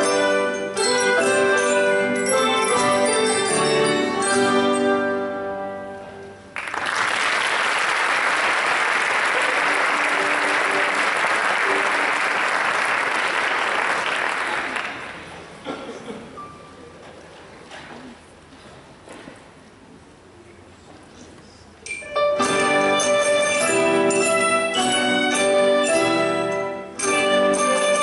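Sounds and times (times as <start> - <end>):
mallet ensemble playing: 0.0 - 6.5, 21.9 - 28.0
audience applause: 6.6 - 15.3.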